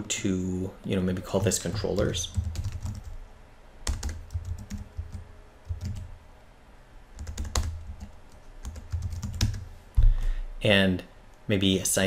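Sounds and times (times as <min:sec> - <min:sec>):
computer keyboard keys clacking: 0:01.9 - 0:03.2, 0:03.8 - 0:06.1, 0:07.2 - 0:09.6.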